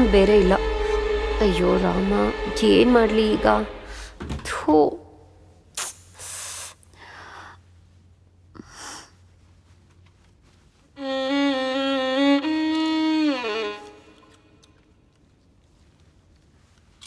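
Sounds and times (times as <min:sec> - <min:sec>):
violin comic phrase: 0:00.0 - 0:04.1.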